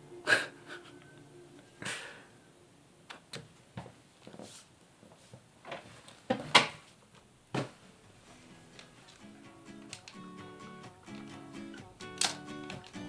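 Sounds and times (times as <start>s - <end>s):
soft music: 0.0s - 3.0s, 7.8s - 13.0s.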